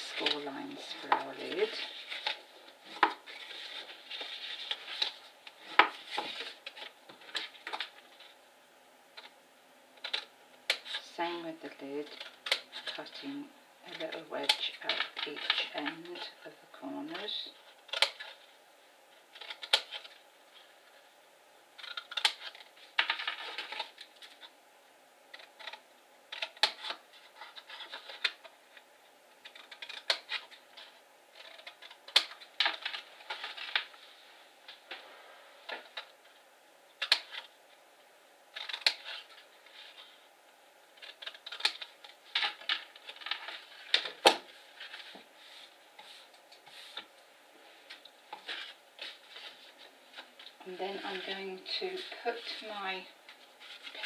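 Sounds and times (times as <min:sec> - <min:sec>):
card rustling: 0:00.0 - 0:08.4, 0:47.8 - 0:54.0.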